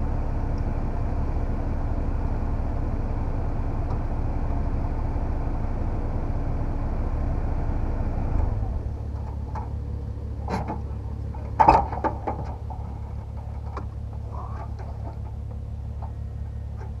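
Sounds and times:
car engine idling: 0.0s - 17.0s
sharp clicks and knocks: 10.5s - 13.9s.

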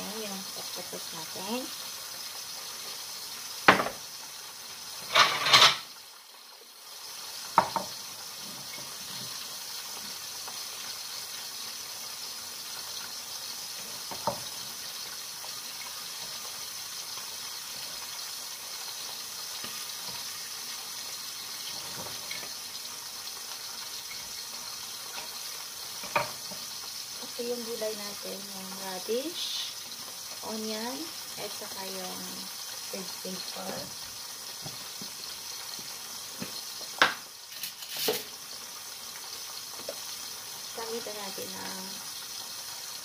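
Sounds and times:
kitchen tap running into sink: 2.8s - 4.1s, 7.3s - 43.0s
kitchenware knocking and clattering: 3.7s - 4.0s, 5.0s - 5.9s, 7.6s - 7.9s, 26.0s - 26.5s.

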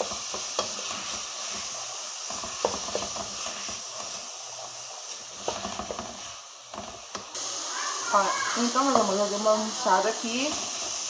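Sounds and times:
wooden spoon knocking and scraping: 0.0s - 7.3s
vegetables sizzling in a metal pan: 0.0s - 11.0s.

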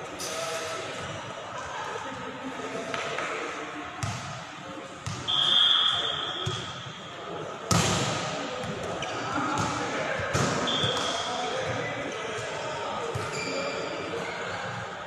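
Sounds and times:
referee's whistle: 5.2s - 6.7s, 10.6s - 11.3s.

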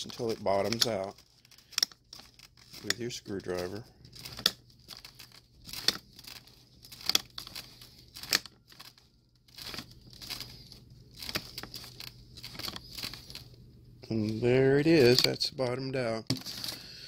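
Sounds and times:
cardboard box crinkling and scraping: 0.0s - 1.5s, 2.2s - 13.5s.

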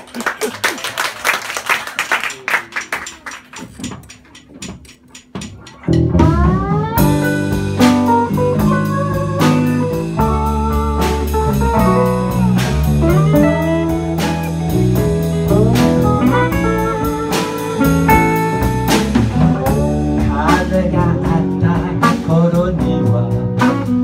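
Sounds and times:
low accompaniment: 2.2s - 24.0s
electric guitar lead: 5.8s - 24.0s.

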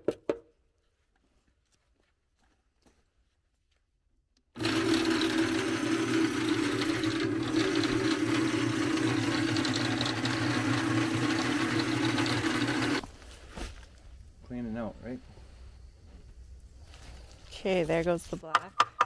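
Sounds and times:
cement mixer running: 4.6s - 13.1s.

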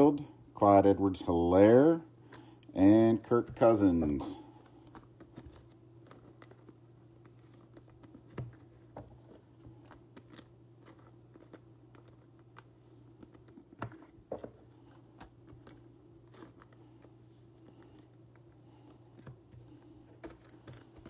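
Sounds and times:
steady low hum: 0.0s - 21.0s
trading cards shuffled: 3.3s - 21.0s
plastic wrapper crinkling: 9.6s - 14.1s.

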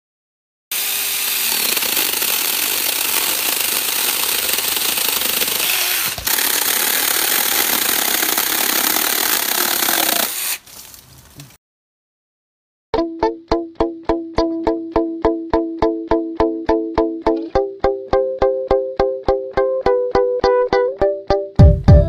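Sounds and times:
mini chainsaw cutting branch: 0.7s - 10.8s.

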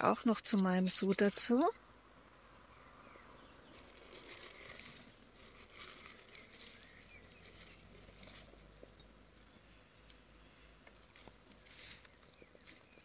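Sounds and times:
dry onion skins rustling: 3.6s - 9.6s, 10.7s - 13.0s.

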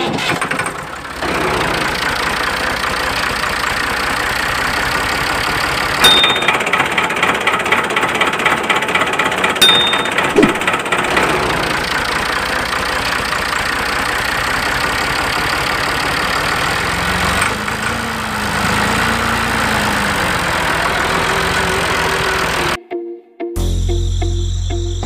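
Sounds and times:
small drive motor running: 8.6s - 22.8s.

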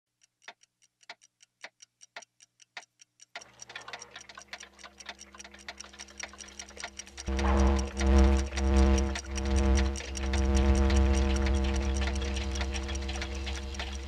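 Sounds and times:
clock ticking quickly: 0.1s - 14.0s
low steady hum: 5.4s - 14.0s.

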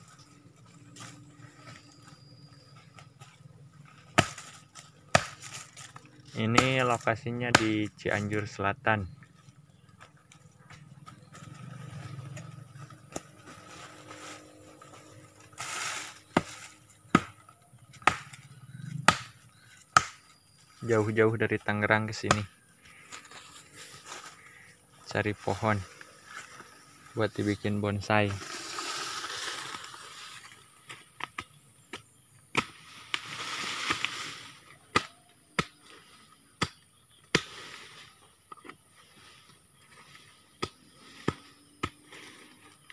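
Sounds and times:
loose earth scraping and rustling: 0.0s - 42.9s
tool chopping into soil: 4.1s - 8.0s, 15.6s - 20.4s, 22.2s - 22.5s, 30.9s - 34.2s, 34.9s - 36.0s, 36.6s - 37.6s, 40.5s - 42.2s
scraping rustle: 9.9s - 16.9s, 25.4s - 31.2s.

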